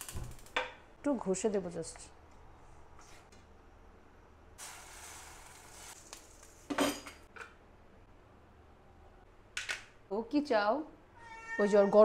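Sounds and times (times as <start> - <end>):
hiss: 4.6 - 6.0.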